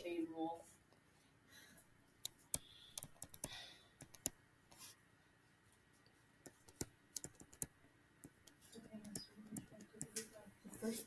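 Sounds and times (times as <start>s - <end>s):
stylus tapping on tablet screen: 2.2s - 4.8s, 6.4s - 10.3s.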